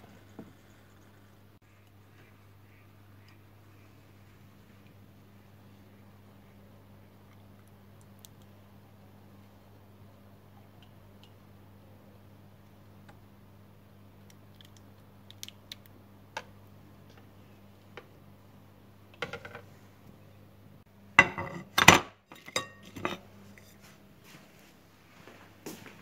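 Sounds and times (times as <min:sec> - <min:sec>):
low steady hum: 0:00.0 - 0:26.0
kitchenware clattering: 0:21.2 - 0:23.7.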